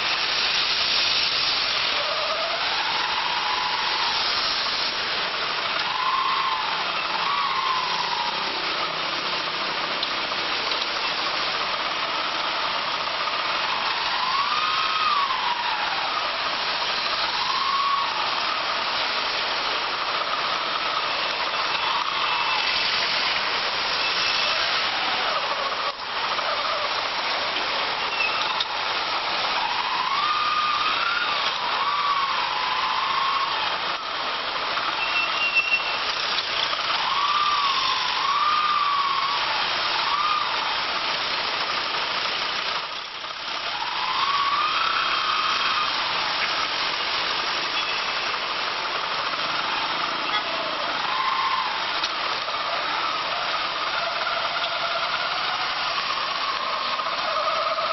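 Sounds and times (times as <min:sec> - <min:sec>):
engine whine: 0:00.0 - 0:57.9
road and wind noise: 0:00.0 - 0:57.9.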